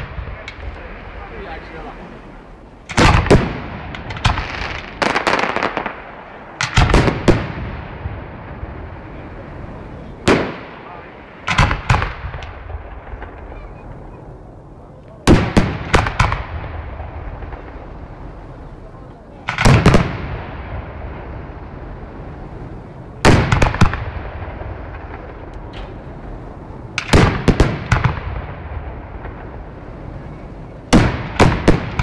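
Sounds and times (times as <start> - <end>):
steady hiss: 0.0 - 32.0
firework shells bursting: 2.8 - 8.6, 10.2 - 14.4, 15.2 - 20.4, 22.8 - 32.0.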